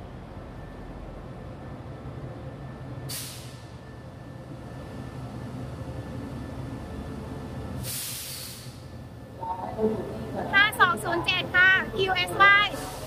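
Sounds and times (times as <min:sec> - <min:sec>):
locomotive engine hum: 0:00.0 - 0:13.0
air hiss: 0:07.8 - 0:08.8.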